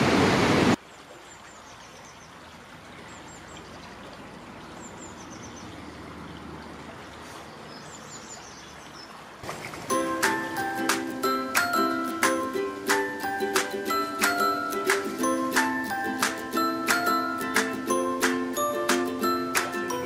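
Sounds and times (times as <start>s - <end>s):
river rushing: 9.2s - 20.0s
music with mallet notes: 9.9s - 20.0s.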